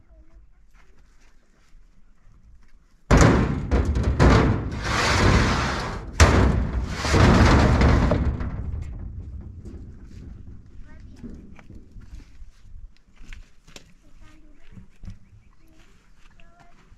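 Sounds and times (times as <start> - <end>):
stones scraping on metal: 3.1 - 10.7
stones banging on steel bed: 3.1 - 11.3.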